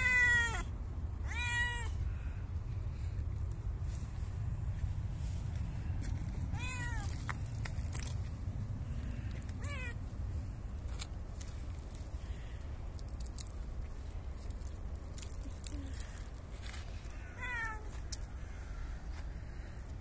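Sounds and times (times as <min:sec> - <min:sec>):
cat meowing: 0:00.0 - 0:01.9, 0:06.5 - 0:07.1, 0:09.6 - 0:10.0, 0:17.3 - 0:17.9
steady low rumble: 0:00.0 - 0:20.0.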